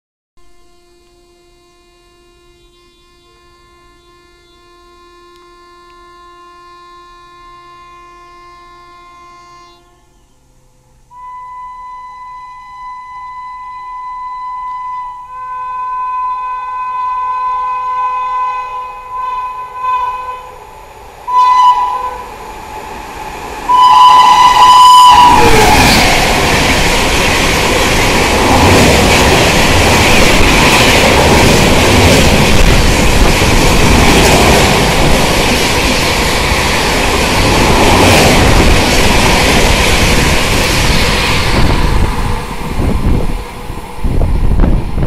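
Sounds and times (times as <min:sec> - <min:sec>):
locomotive horn blasts: 0:00.4 - 0:10.5, 0:11.1 - 0:20.6, 0:21.3 - 0:22.3, 0:23.7 - 0:26.9
train rumbling past: 0:09.8 - 0:45.0.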